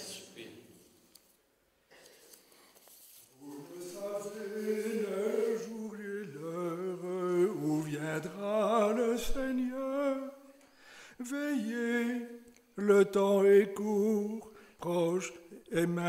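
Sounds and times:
men singing a liturgical chant: 3.4 - 10.4, 11.2 - 16.0.

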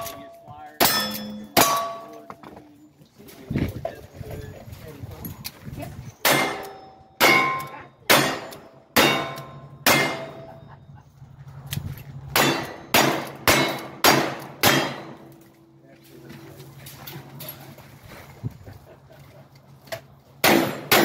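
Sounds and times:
steel targets ringing: 0.0 - 2.4, 6.2 - 10.7, 12.4 - 15.3.

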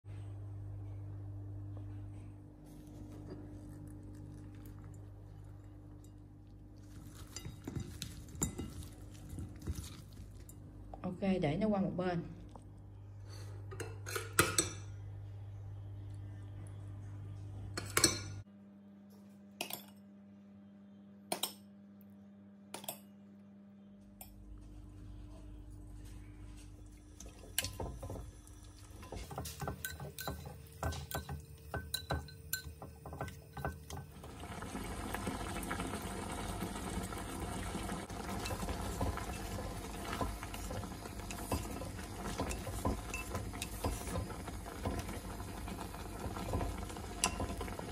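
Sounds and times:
chopsticks clinking on clay pot: 29.0 - 34.0.

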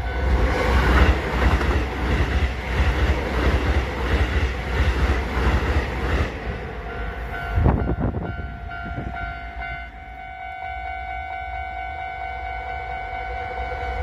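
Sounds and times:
train wheel clatter: 0.0 - 6.5
train rumble: 0.0 - 14.0
level-crossing alarm ringing: 6.8 - 14.0.

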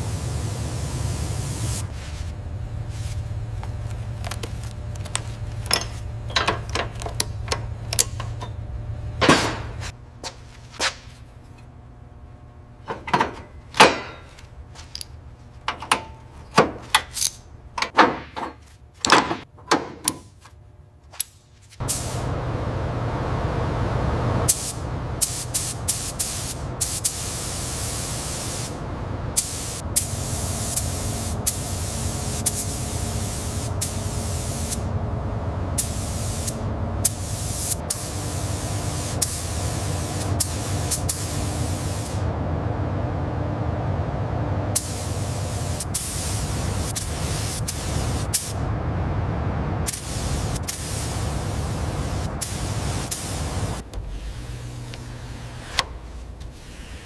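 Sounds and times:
hissing spray: 0.0 - 2.2, 24.5 - 28.8, 29.4 - 34.9, 35.8 - 42.2, 44.8 - 48.6, 49.9 - 53.8
low hum: 0.0 - 16.6, 21.8 - 57.0.

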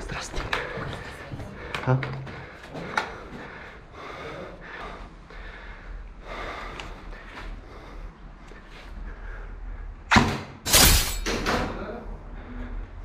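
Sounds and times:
person breathing close: 0.6 - 9.9.

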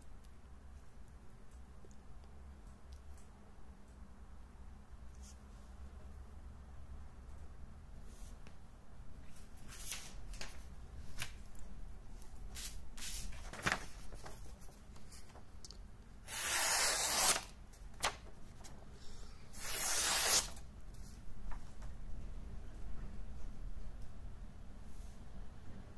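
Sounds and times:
paper rustling and blade clicks: 12.6 - 15.5, 16.3 - 18.7, 19.6 - 20.6
knife slicing through paper: 16.3 - 17.5, 19.6 - 20.6.

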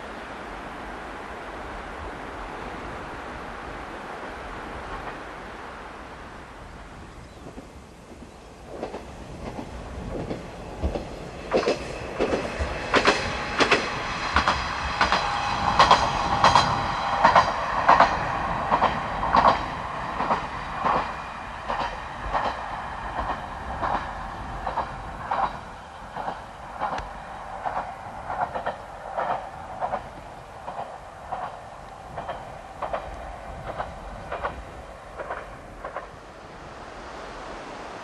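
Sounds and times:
train wheels clicking over rail joints: 7.3 - 36.4.

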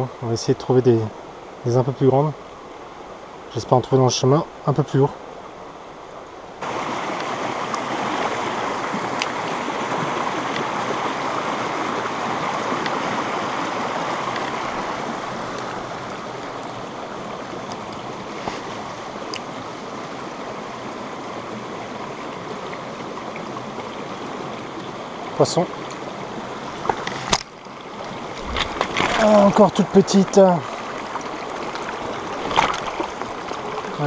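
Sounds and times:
stream running over rocks: 0.0 - 34.0.

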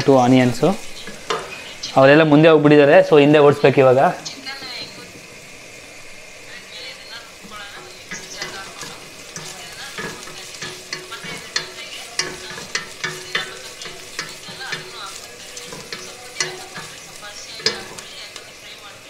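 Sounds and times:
food sizzling hiss: 0.0 - 19.0
wooden spatula scraping metal pan: 7.0 - 19.0.

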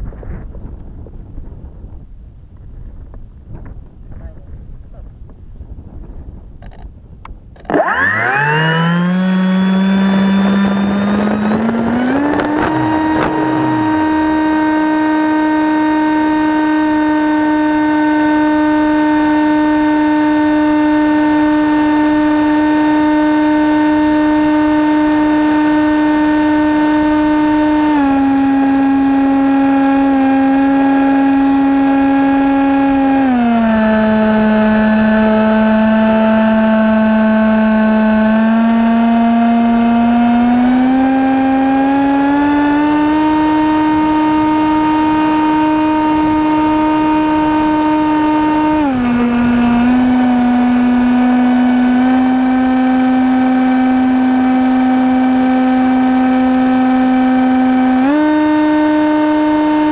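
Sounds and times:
model airplane motor whining: 7.6 - 59.9
wind rushing: 9.6 - 14.7.

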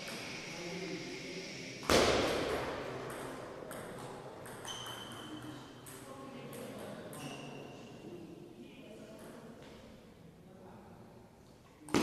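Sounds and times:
loud sharp paddle hit: 1.8 - 2.9.

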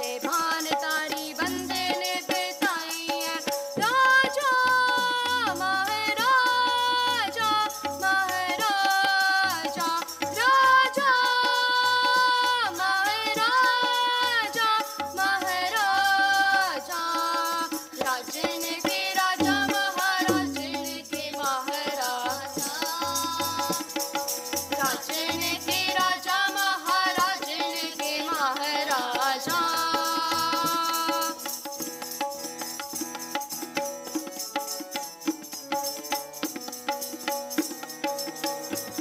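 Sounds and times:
harmonium: 0.0 - 39.0
tabla rhythm: 0.0 - 39.0
children singing: 18.3 - 21.5.

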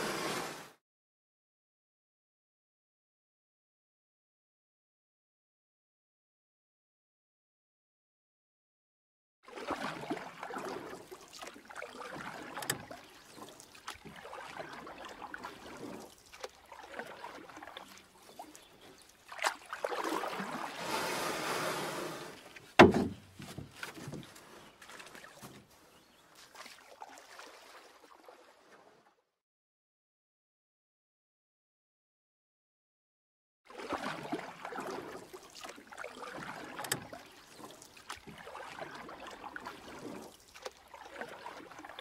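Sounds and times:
water sloshing around kayak: 0.0 - 0.8, 9.4 - 29.2, 33.7 - 42.0.

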